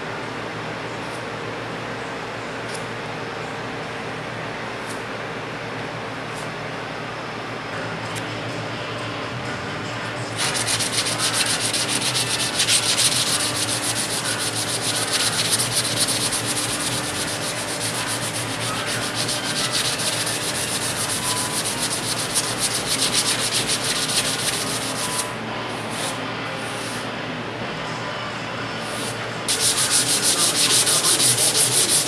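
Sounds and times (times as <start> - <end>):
sandpaper scratching: 10.4 - 25.3, 29.5 - 32.0.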